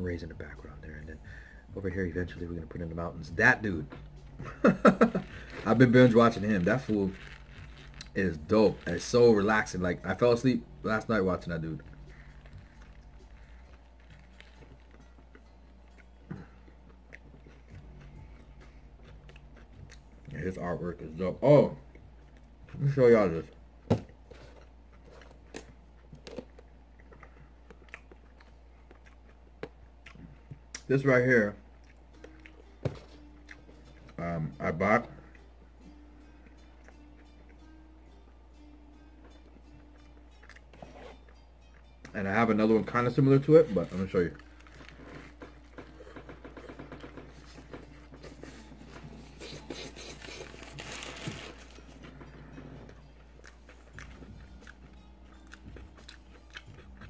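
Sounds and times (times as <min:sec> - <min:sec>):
low steady hum: 0:00.0 - 0:57.0
paper wrapper crinkling: 0:05.0 - 0:09.4, 0:43.6 - 0:45.8, 0:49.4 - 0:52.0
close-up chewing: 0:11.8 - 0:20.4, 0:24.9 - 0:30.9, 0:40.0 - 0:41.9, 0:43.6 - 0:57.0.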